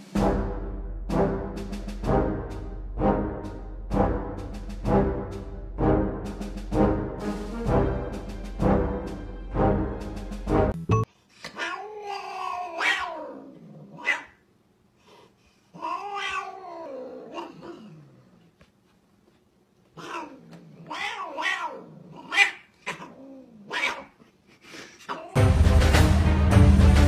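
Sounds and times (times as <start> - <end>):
loud music: 0.0 - 11.1, 25.4 - 27.0
cat yowling: 11.6 - 14.4, 15.8 - 18.0, 20.0 - 24.2.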